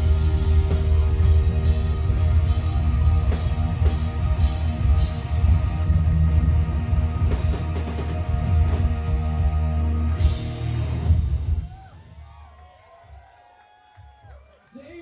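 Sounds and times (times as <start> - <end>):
rock band playing live: 0.0 - 11.9.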